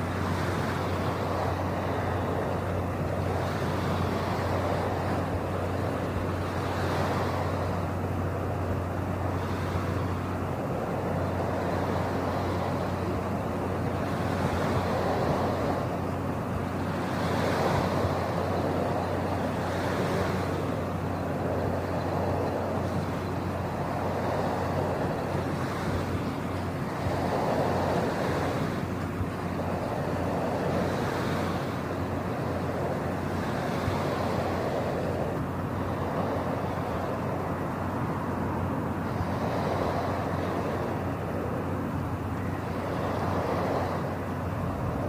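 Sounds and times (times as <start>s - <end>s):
ocean waves washing: 0.0s - 45.0s.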